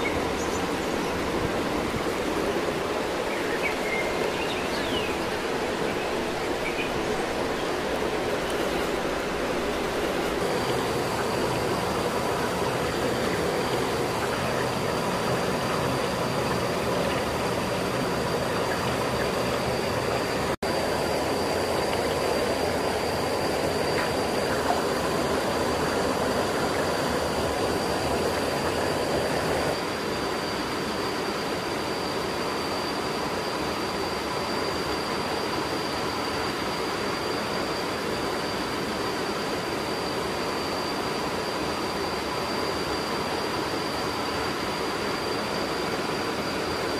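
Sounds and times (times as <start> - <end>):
thin high whine: 0.0 - 46.9
water rushing over rocks: 5.2 - 29.8.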